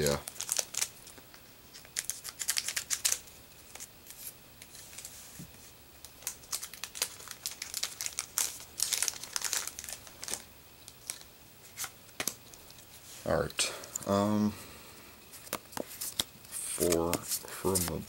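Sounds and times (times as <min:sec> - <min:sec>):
foil wrapper crinkling and tearing: 0:00.0 - 0:04.2, 0:06.0 - 0:12.4.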